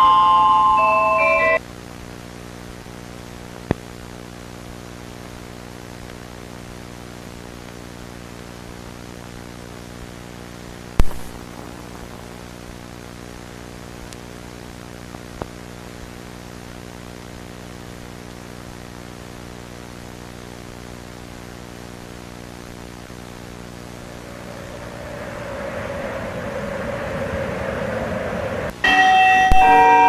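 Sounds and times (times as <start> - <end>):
electrical hum with static: 0.0 - 28.8
sharp loud bang: 11.0 - 12.0.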